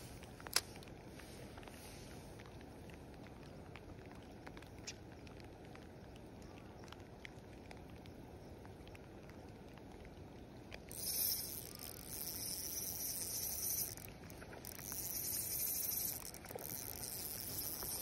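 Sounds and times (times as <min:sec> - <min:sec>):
spinning reel cranking hiss: 0:10.9 - 0:18.0.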